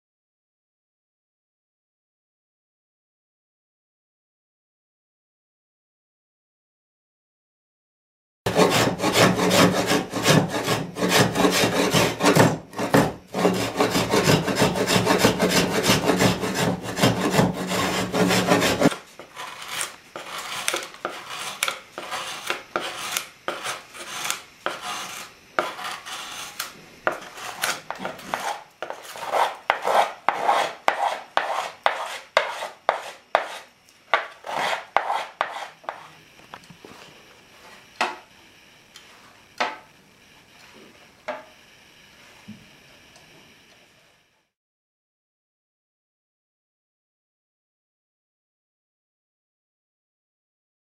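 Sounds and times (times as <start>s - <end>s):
hand tools carving wood: 8.5s - 36.2s.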